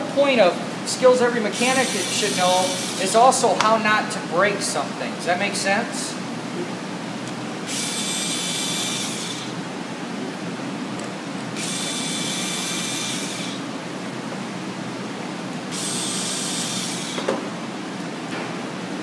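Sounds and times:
screw gun whining: 1.6 - 3.1, 7.6 - 9.6, 11.6 - 13.7, 15.7 - 17.4.

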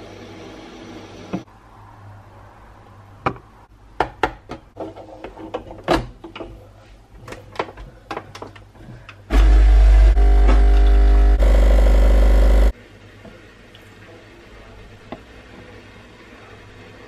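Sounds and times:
espresso machine pump buzzing: 9.3 - 12.7.

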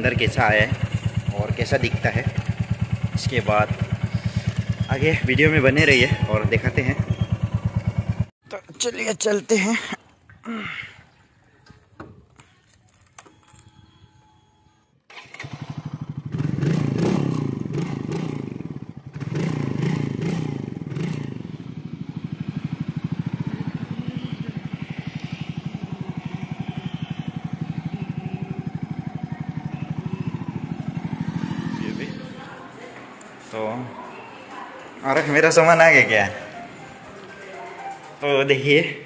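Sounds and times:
motorcycle engine starting and revving: 0.0 - 8.3, 15.1 - 34.5.

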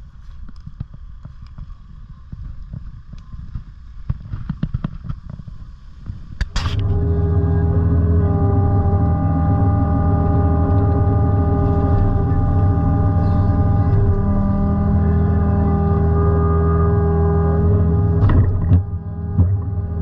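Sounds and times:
hydraulic whine: 6.4 - 20.0
diesel engine running: 6.5 - 20.0.

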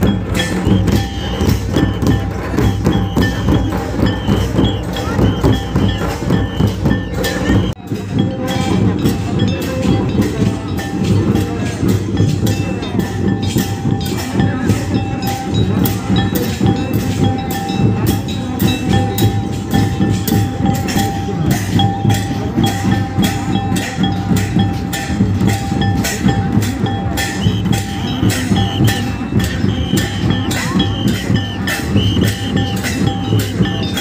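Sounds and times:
hand drums beating fast rhythm: 0.0 - 34.0.

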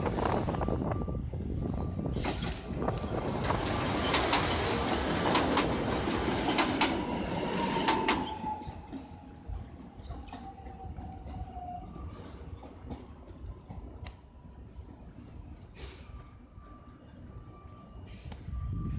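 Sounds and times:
faint train whine: 0.0 - 18.9
train wheel and rail noise: 0.0 - 18.9
wheels clicking over rail joints: 1.4 - 14.2.

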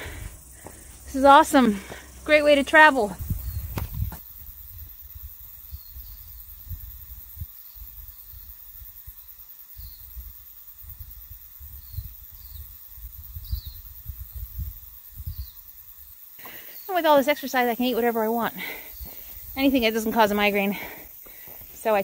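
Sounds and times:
steady high hiss: 0.0 - 22.0
wind rumbling on microphone: 2.9 - 9.2, 9.8 - 16.1
faint bird chirps: 3.2 - 17.6.

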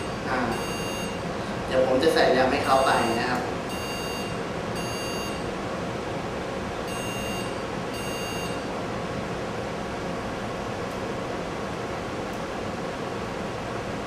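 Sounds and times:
pc speaker long beeps: 0.0 - 1.2, 2.6 - 5.5, 6.9 - 8.7
fan hum: 0.0 - 14.0.

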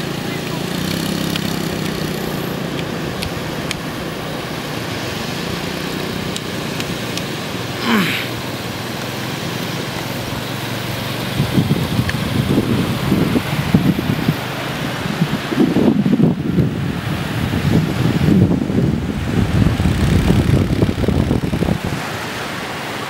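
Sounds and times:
voices: 0.0 - 4.8, 7.8 - 8.4
low surf on beach: 0.0 - 23.0.

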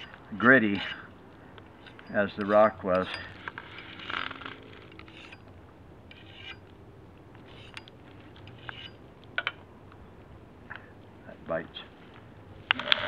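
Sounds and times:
sharpener scraping steel edge: 0.7 - 1.1, 1.8 - 5.4, 6.1 - 6.7, 7.5 - 9.0.

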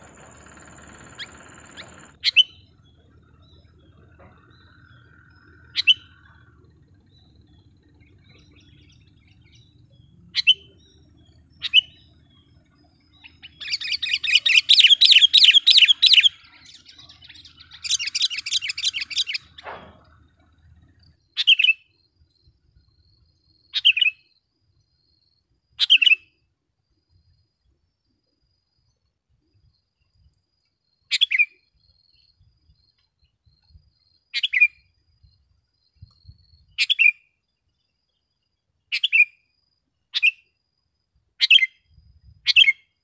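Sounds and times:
bird rapid chattering: 0.0 - 6.6, 13.2 - 19.7
bird call notes: 0.0 - 19.8.

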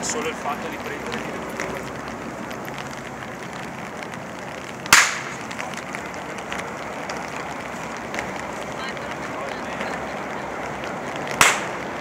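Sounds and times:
whip cracking: 4.9 - 5.4, 11.3 - 11.9.

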